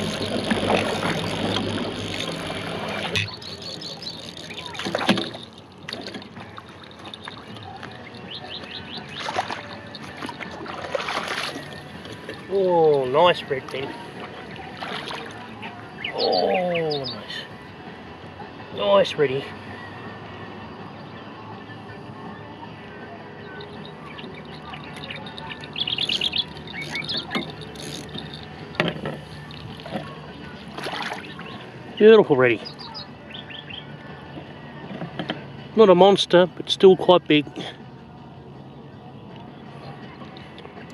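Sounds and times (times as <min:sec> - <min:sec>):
water lapping against boat hull: 0:00.0 - 0:17.7, 0:23.4 - 0:32.0
bird chirping: 0:02.9 - 0:05.5, 0:07.0 - 0:10.4, 0:15.9 - 0:17.5, 0:23.4 - 0:30.5, 0:31.1 - 0:31.8, 0:32.6 - 0:33.9.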